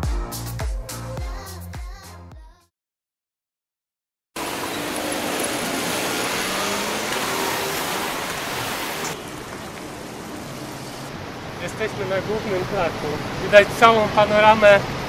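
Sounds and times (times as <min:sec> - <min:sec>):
passing cars and buses hissing: 0:04.4 - 0:11.6.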